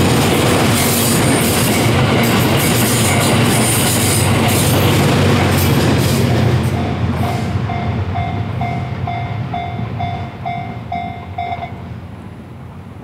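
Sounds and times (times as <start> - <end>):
diesel train rumbling: 0.0 - 13.0
level crossing alarm dinging: 6.8 - 11.8.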